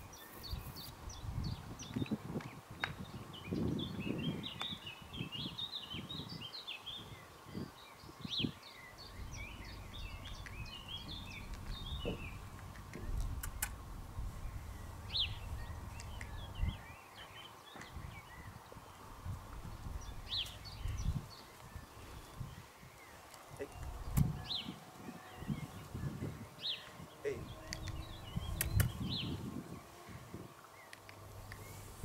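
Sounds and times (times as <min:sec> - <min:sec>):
birds chirping: 0:00.0 - 0:32.0
wind rumble on microphone: 0:00.0 - 0:32.0
horse hooves in sand: 0:09.0 - 0:16.7, 0:19.3 - 0:26.8.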